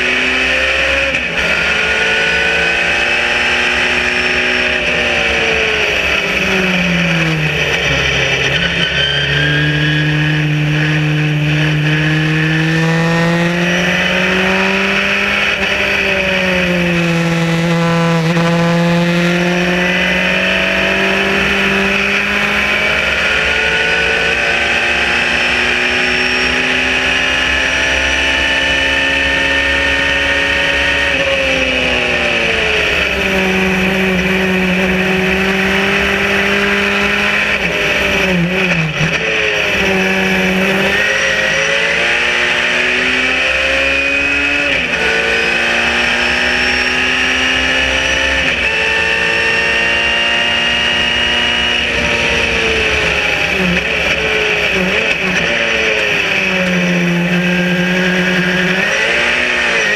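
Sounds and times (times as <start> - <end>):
race car engine at speed: 0.0 - 59.9
wind and road noise: 0.0 - 59.9.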